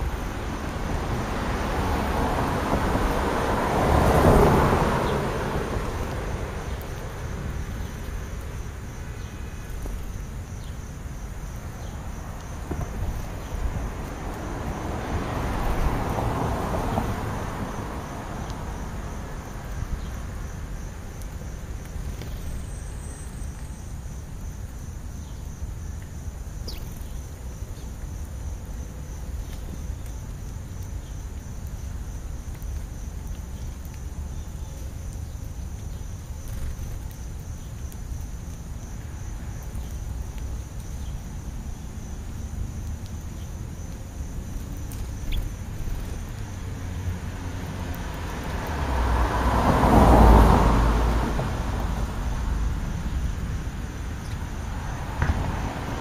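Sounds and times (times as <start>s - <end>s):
car passing: 0.0s - 9.6s, 11.6s - 21.8s, 43.6s - 56.0s
faint insect chirping: 4.9s - 56.0s.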